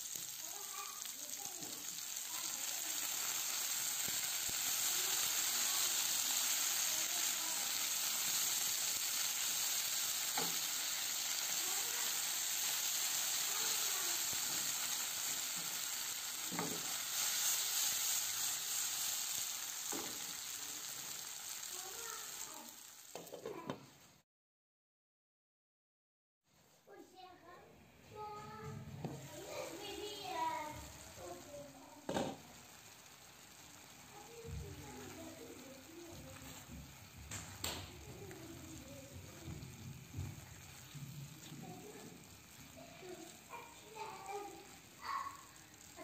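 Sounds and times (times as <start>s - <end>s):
vegetables sizzling in oil: 0.0s - 24.0s, 28.1s - 46.0s.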